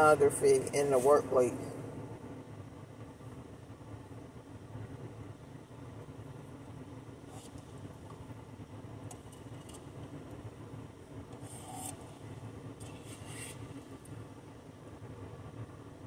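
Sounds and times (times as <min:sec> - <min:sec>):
faint scrapes and clicks: 0:12.8 - 0:13.8.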